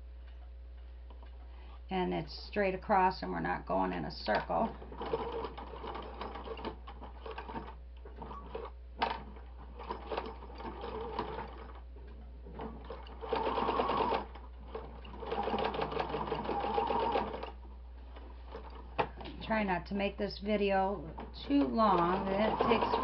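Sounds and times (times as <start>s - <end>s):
sewing machine stitching: 4.3s - 11.8s, 12.5s - 17.6s, 21.0s - 23.0s.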